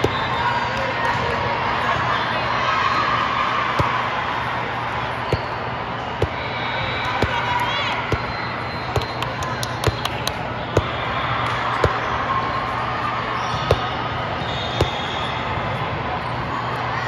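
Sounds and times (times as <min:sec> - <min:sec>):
volleyballs thumping on court floor: 0:00.0 - 0:01.4, 0:03.6 - 0:12.2, 0:13.4 - 0:14.1, 0:14.7 - 0:15.3
hubbub of many voices: 0:00.0 - 0:17.0.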